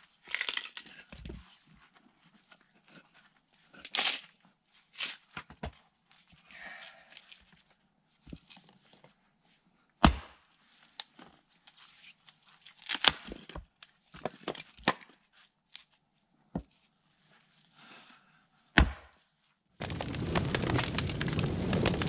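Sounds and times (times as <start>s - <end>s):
axe splitting firewood: 10.0s - 10.4s, 12.8s - 15.0s, 18.8s - 19.2s.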